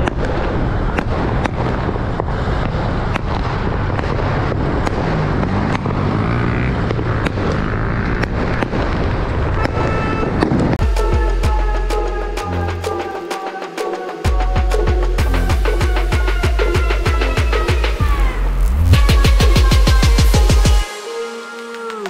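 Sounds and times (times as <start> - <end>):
car driving rumble: 0.0 - 10.9
fireworks cracking and banging: 0.0 - 10.9.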